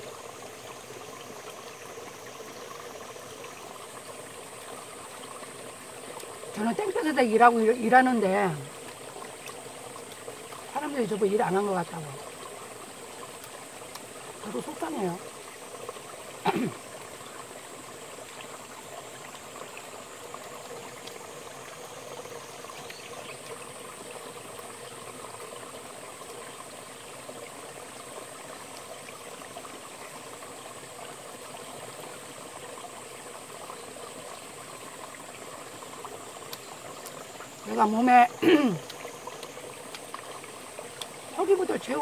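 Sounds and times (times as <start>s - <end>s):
stream rushing over rocks: 0.0s - 42.0s.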